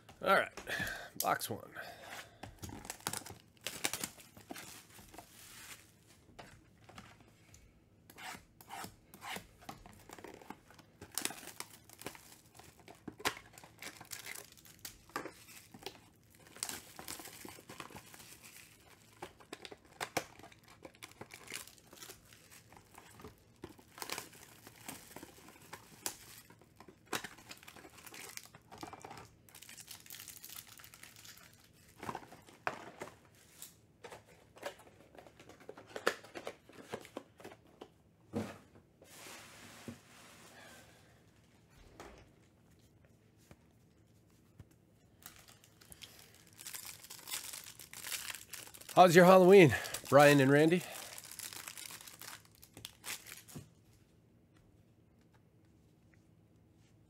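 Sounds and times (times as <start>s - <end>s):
plastic wrappers tearing and crinkling: 2.6s - 5.9s, 9.9s - 32.7s, 45.1s - 53.7s.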